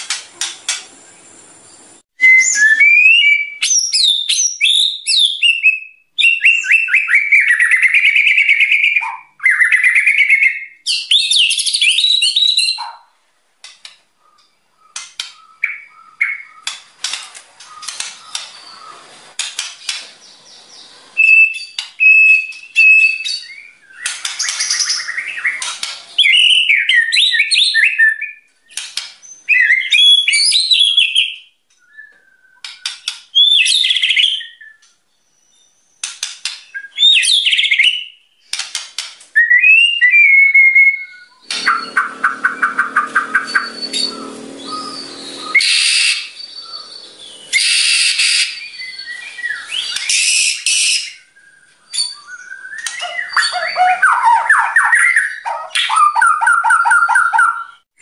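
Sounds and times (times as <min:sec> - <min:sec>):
bird singing whistled phrases: 0:02.2 - 0:12.9, 0:21.2 - 0:28.4, 0:29.2 - 0:35.8, 0:36.7 - 0:38.2, 0:39.4 - 0:57.8
bird chattering notes: 0:41.4 - 0:48.5.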